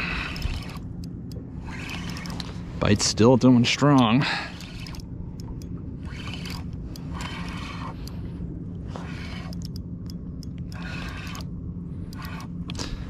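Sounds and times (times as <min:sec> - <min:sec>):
spinning reel whirring: 0:00.0 - 0:13.0
steady low hum: 0:00.0 - 0:13.0.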